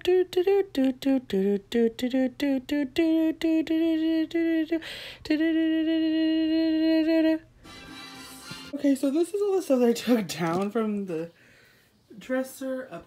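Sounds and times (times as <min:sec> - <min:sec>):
woman breathing in: 0:04.8 - 0:05.2, 0:11.4 - 0:12.0.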